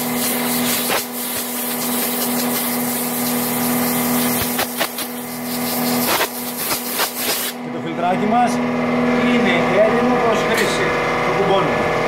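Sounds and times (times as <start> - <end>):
air blow gun hissing: 0.0 - 7.6.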